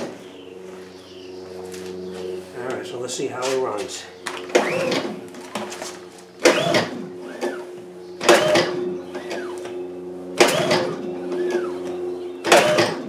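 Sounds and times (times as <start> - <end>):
generator recoil starter pulls: 4.2 - 9.8, 10.4 - 13.0.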